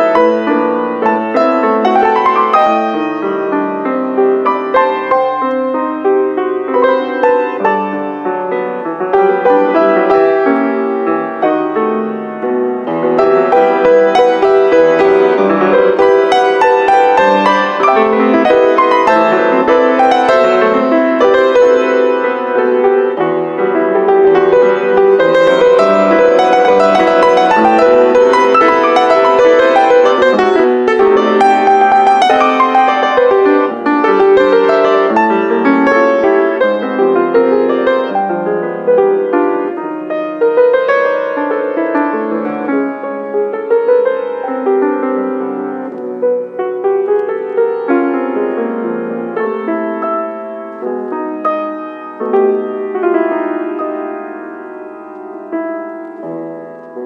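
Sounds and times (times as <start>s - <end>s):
grand piano playing: 0.0s - 57.0s.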